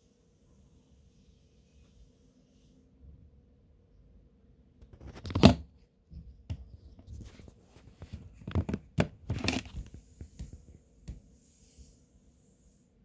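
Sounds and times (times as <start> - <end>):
rustling and crinkling: 6.2 - 11.2.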